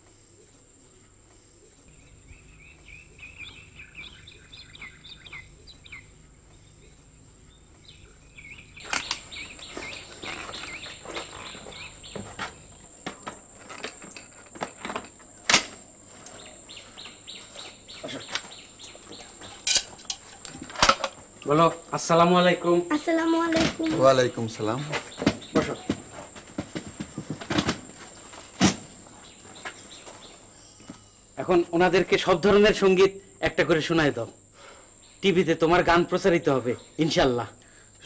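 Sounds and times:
small birds chirping: 0.9 - 14.3, 16.0 - 20.6, 21.2 - 31.6.

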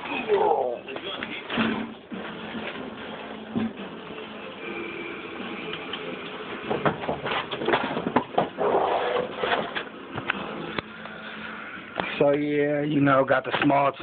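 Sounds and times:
objects clattering: 6.7 - 10.3.

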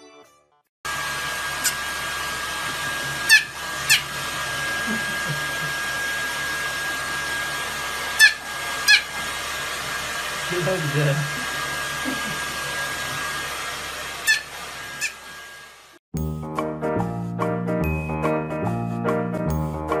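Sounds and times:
hair dryer blowing: 0.9 - 16.0.

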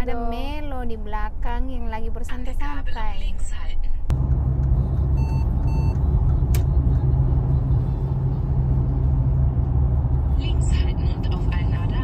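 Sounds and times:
car cabin road rumble: 4.1 - 12.0
short electronic beeps: 5.1 - 6.1
click: 6.5 - 6.7.

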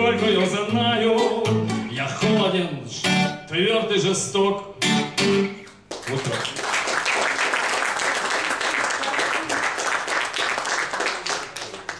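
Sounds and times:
audience applauding: 5.9 - 11.9.

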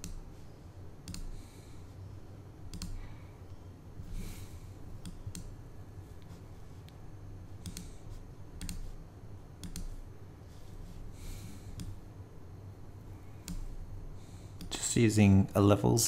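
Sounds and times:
computer mouse clicking: 0.0 - 0.3, 1.0 - 1.4, 2.6 - 3.0, 4.9 - 9.0, 9.6 - 10.1, 11.5 - 12.0, 13.3 - 13.8, 14.5 - 14.8
low steady hum: 0.0 - 16.0.

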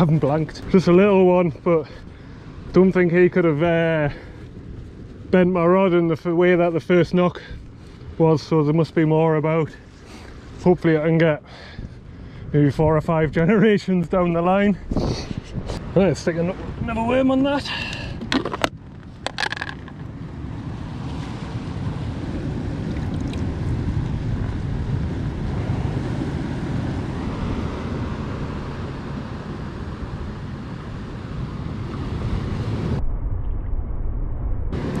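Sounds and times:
wind buffeting microphone: 11.8 - 35.0.

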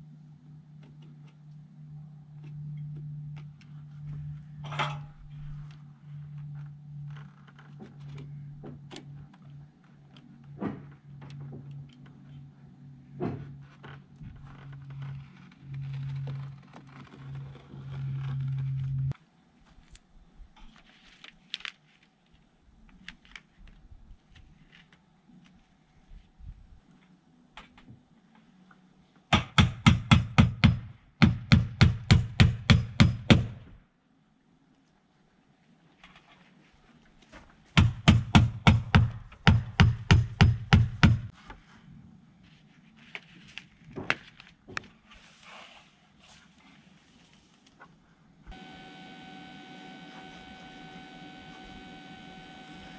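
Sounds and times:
house wrap crinkling: 13.9 - 20.1, 20.7 - 25.7
hammer driving nails: 29.3 - 33.7, 37.8 - 41.3
steady low hum: 48.0 - 52.9.

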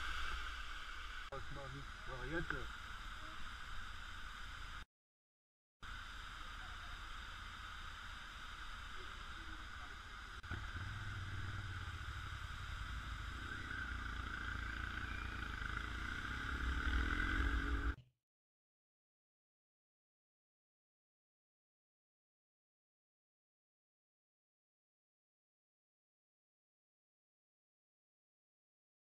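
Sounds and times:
motorcycle engine drone: 0.0 - 4.8, 5.8 - 18.0.

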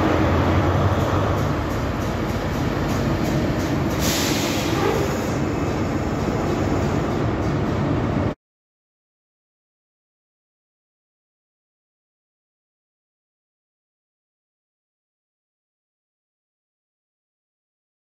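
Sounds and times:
diesel engine idling: 0.0 - 7.4
brief hiss: 4.0 - 5.4.

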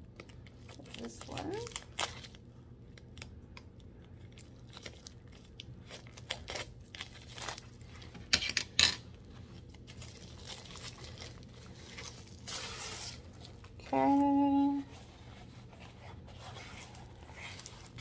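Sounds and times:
plastic bag rustling and crinkling: 0.2 - 2.4, 9.1 - 18.0.

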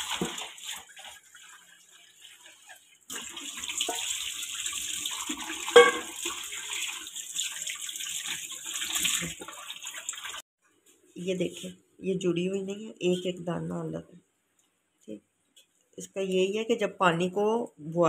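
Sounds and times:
water running through a strainer: 0.0 - 10.5.

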